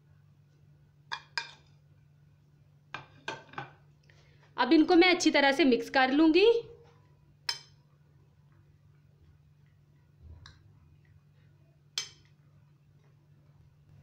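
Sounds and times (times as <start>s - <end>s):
faint low hum: 0.0s - 14.0s
metal spoon clinking on plate: 7.5s - 7.8s, 12.0s - 12.3s.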